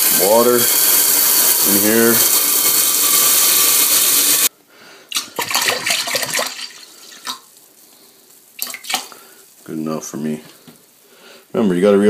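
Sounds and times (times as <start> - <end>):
sink sprayer water splashing into pot: 0.0 - 4.5, 5.1 - 7.5, 8.6 - 9.3.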